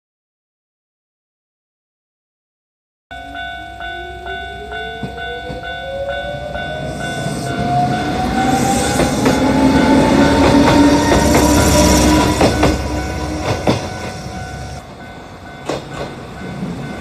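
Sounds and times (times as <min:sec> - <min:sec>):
level crossing alarm dinging: 0:03.1 - 0:17.0
train wheel and rail noise: 0:03.2 - 0:17.0
electric train motor whine: 0:03.3 - 0:14.8.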